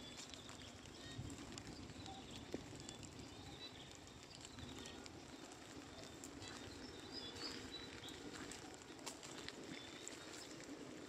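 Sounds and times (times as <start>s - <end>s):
low background noise: 0.0s - 11.0s
bird chirps: 6.0s - 8.3s.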